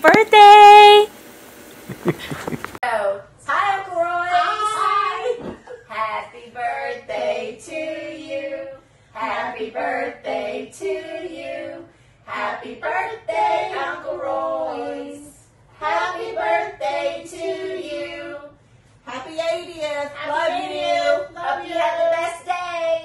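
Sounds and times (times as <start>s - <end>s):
women singing together: 2.8s - 23.0s.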